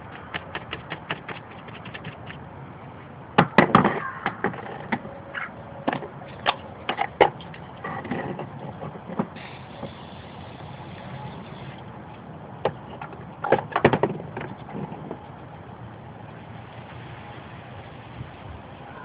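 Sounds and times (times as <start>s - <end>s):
sharp clicks and knocks: 0.0s - 2.4s, 12.1s - 15.2s
spray paint can hissing: 9.4s - 11.8s.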